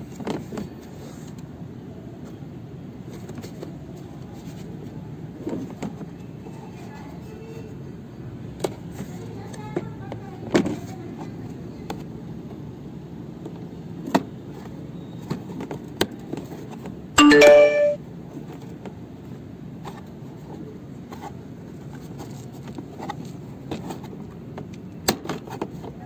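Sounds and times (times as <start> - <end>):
short multi-tone chime: 17.2 - 18.0.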